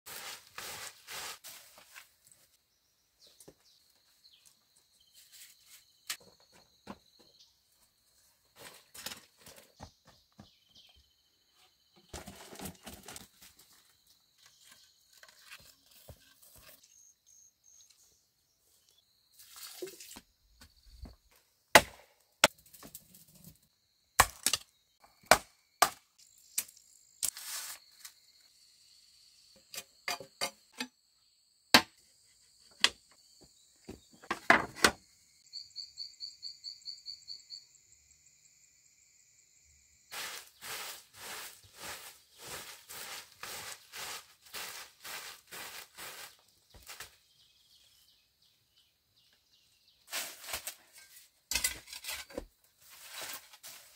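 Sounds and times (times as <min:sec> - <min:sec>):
high insect drone: 0:35.1 - 0:46.4
rustling: 0:40.1 - 0:47.2.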